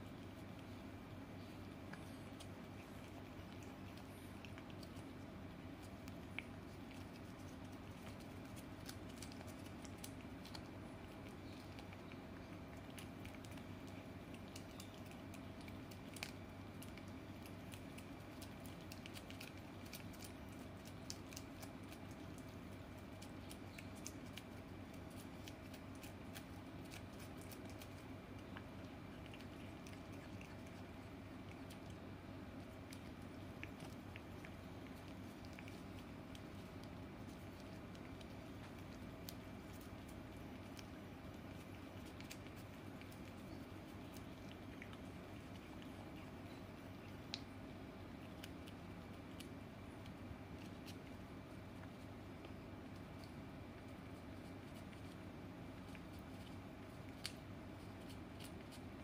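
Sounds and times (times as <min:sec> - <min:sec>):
cat licking: 0:00.0 - 0:59.0
low room hum: 0:00.0 - 0:59.0.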